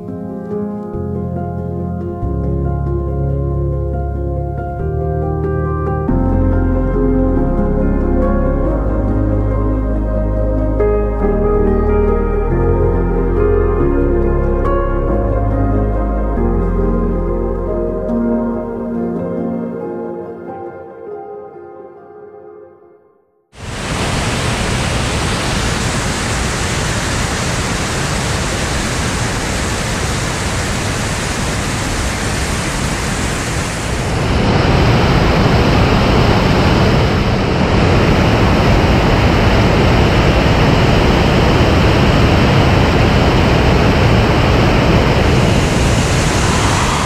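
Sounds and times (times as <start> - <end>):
waterfall rushing over rock: 23.6 - 47.0.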